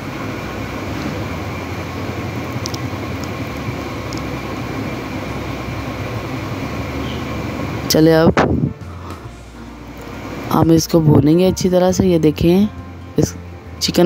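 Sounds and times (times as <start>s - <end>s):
gravy bubbling and sizzling: 0.0s - 7.9s.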